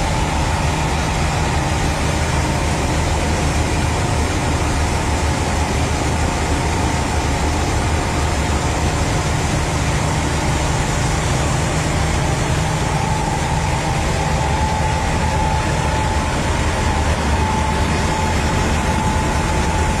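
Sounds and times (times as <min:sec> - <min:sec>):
combine harvester drone: 0:00.0 - 0:20.0
auger whine: 0:11.3 - 0:20.0.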